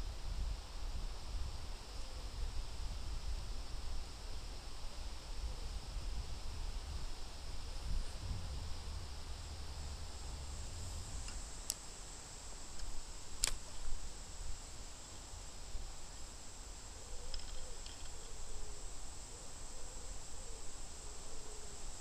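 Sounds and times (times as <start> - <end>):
wind rumbling on microphone: 0.0 - 11.7
insect trill: 0.0 - 22.0
sharp clicks: 12.8 - 13.7.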